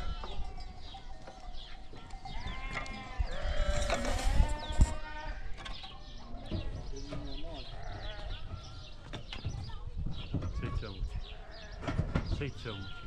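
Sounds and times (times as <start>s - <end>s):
sheep and goats bleating: 0.0s - 5.6s, 7.6s - 8.8s
dull low knocks: 6.4s - 13.0s.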